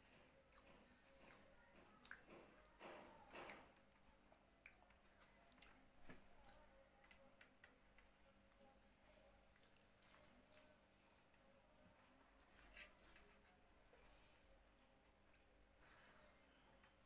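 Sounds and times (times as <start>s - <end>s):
soft chewing: 0.0s - 17.0s.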